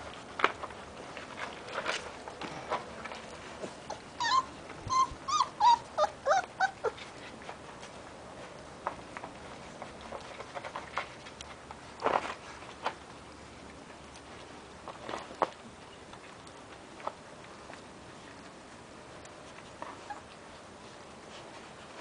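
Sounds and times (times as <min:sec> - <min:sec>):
puppies whimpering and yelping: 0:03.8 - 0:07.4, 0:19.4 - 0:21.0.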